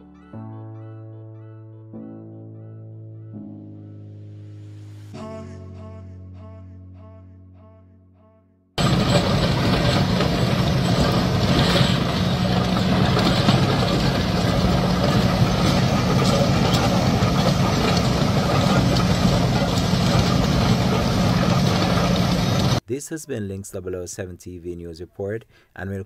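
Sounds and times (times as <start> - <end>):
digging chain cutting: 8.8 - 22.7
diesel engine under load: 8.8 - 22.8.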